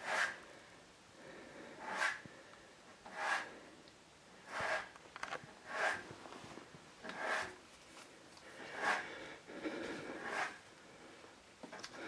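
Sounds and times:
heavy breathing: 0:00.1 - 0:03.8, 0:08.4 - 0:12.0.

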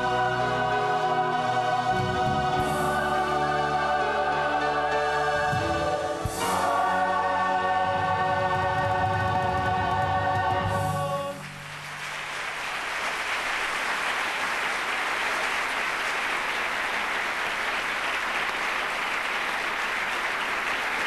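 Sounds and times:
choir singing a chord: 0:00.0 - 0:11.4
audience applause: 0:11.3 - 0:21.0.

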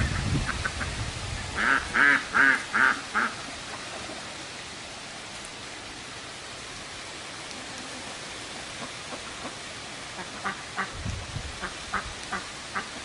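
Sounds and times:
steady hiss: 0:00.0 - 0:13.0
duck quacking: 0:01.6 - 0:03.4, 0:10.2 - 0:10.9.

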